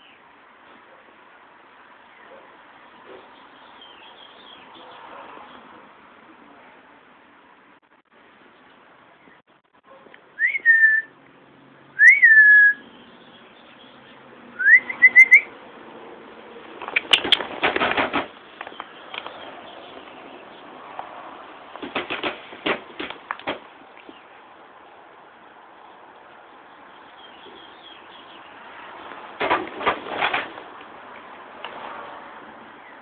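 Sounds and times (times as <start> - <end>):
person whistling: 10.4 - 11.1, 12.0 - 12.8, 14.6 - 15.5
clicking noises: 16.8 - 19.5, 21.7 - 24.2
rustling: 29.1 - 30.8.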